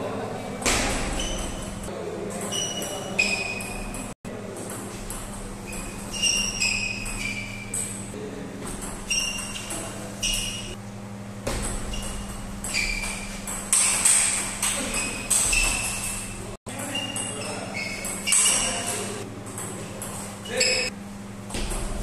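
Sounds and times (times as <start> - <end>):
table tennis ball hits: 0.6 - 4.0, 11.4 - 20.8, 21.5 - 22.0
steady low hum: 3.4 - 16.6.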